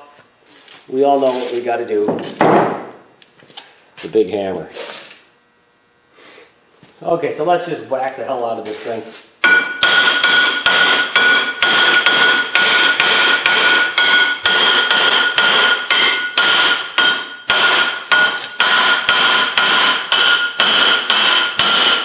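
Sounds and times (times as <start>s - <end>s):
hammer striking metal rotor: 9.4s - 22.0s.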